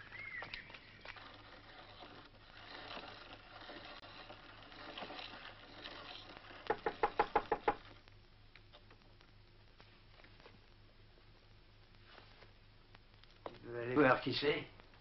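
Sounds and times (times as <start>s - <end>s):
rapid knocks on a door: 6.7s - 7.8s.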